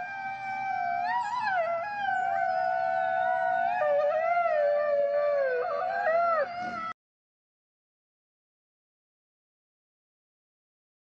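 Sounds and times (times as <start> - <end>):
wolves howling: 0.0 - 7.0.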